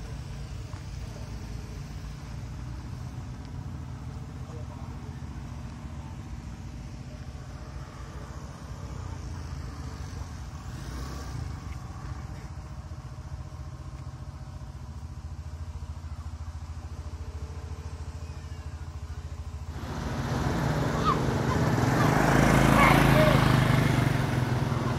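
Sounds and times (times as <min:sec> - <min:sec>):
vehicle engine idling: 0:00.0 - 0:24.9
hiss: 0:07.8 - 0:13.2.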